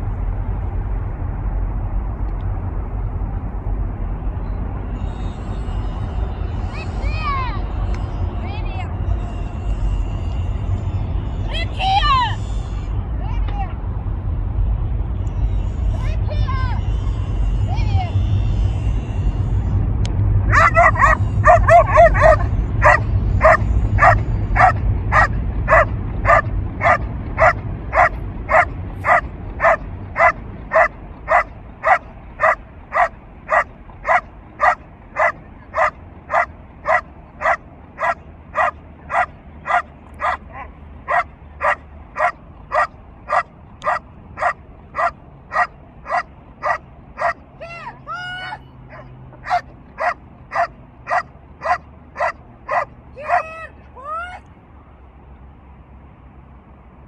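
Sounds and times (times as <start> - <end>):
dog barking: 20.5 - 47.4, 48.9 - 53.5.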